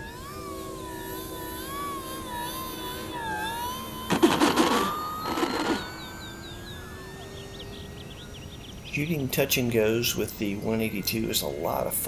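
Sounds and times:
electric motor and propeller whining: 0.0 - 12.0
wheels rolling on asphalt: 4.0 - 6.6.

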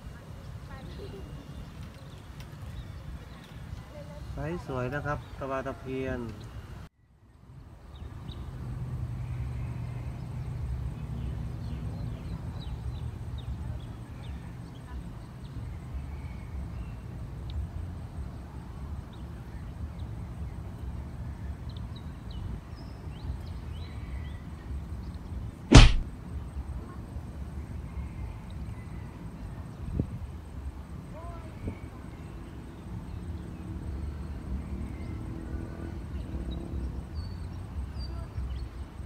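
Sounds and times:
loud sharp snap: 25.7 - 26.1.

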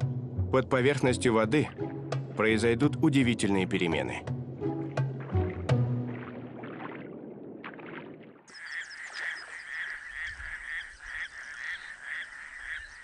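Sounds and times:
toad calling with quacks: 8.5 - 13.0.

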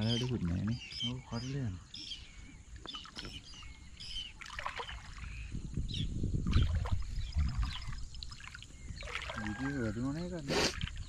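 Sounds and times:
water splashing under wading legs: 0.0 - 1.1, 2.8 - 5.5, 6.4 - 11.0
birds chirping: 0.0 - 11.0.

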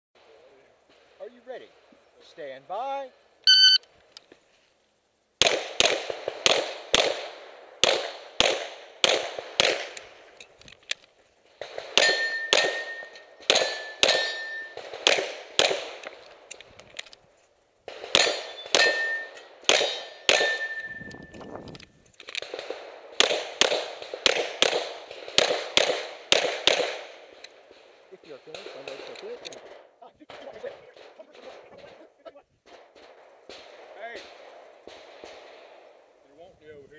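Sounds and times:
pistol shots: 5.4 - 10.3, 11.6 - 16.6, 17.9 - 21.1, 22.2 - 36.1
steel targets ringing: 12.0 - 14.8, 18.2 - 21.3.

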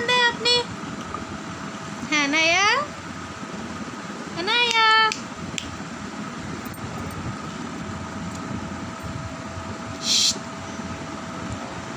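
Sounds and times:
appliance hum and hiss: 0.0 - 11.9
short sharp hiss: 10.0 - 10.4.

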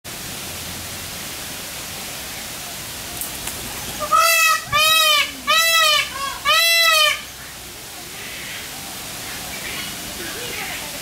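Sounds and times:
steady hiss: 0.1 - 11.0
peafowl calls: 3.2 - 7.6.

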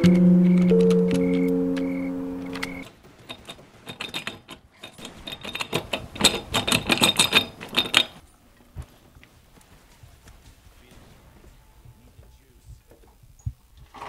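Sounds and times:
held musical chord: 0.0 - 2.8
small hard clicks and rattles: 2.5 - 9.3.

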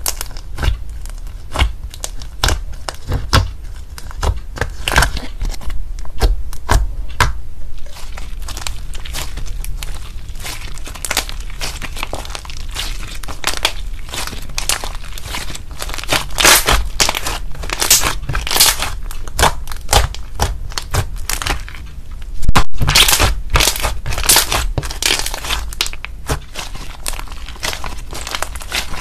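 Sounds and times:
slime sticky clicks and crackles: 8.4 - 21.8.

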